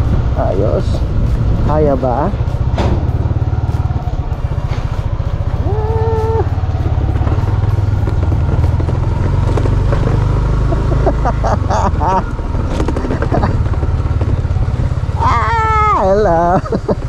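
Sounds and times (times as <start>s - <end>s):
motorcycle engine running: 0.0s - 17.0s.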